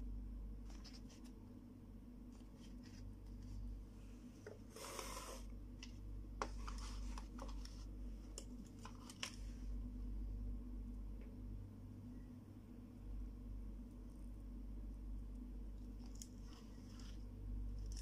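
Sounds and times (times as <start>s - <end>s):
rustling scrape on cloth: 4.7s - 5.5s.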